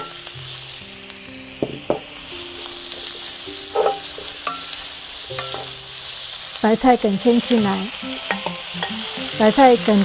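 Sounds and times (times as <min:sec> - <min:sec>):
vegetables sizzling in oil: 0:00.0 - 0:10.0
wooden spatula scraping pan: 0:03.7 - 0:04.4.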